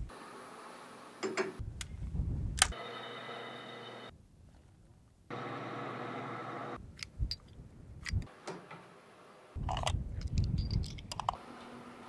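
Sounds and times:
wind rumble: 1.6 - 2.8, 6.8 - 8.3, 9.6 - 11.4.

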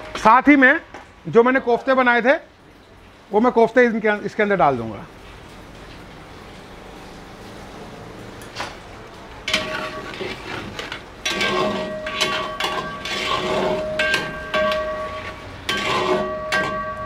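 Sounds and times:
metal spoon scraping steel pan: 9.4 - 17.0
pan ringing: 11.3 - 17.0.

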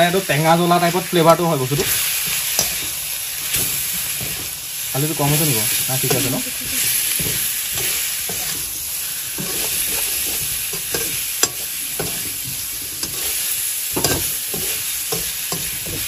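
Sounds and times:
meat frying in oil sizzling: 0.0 - 16.0
metal ladle scraping and clinking pan: 1.8 - 2.9, 7.2 - 8.7, 9.4 - 16.0.

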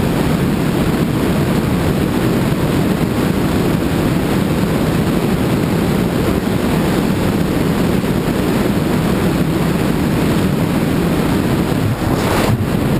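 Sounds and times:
wind buffeting microphone: 0.0 - 12.9
road noise: 10.8 - 12.9.

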